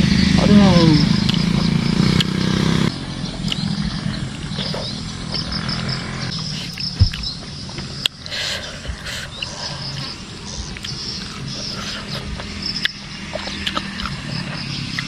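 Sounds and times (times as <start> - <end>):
motorbike engine running: 0.0 - 8.0
birds chirping: 0.0 - 15.0
soft chewing clicks: 8.0 - 15.0.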